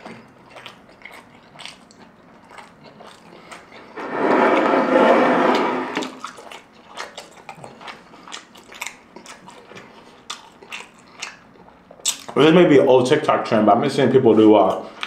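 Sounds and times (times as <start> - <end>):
close-miked chewing: 0.0 - 4.0, 6.1 - 12.6.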